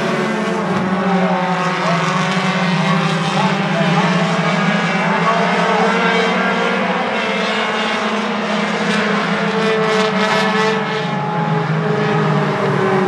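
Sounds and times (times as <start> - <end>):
race car engines droning: 0.0 - 13.0.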